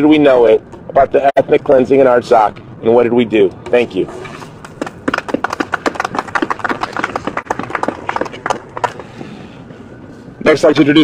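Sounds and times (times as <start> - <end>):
people applauding: 4.6 - 9.1.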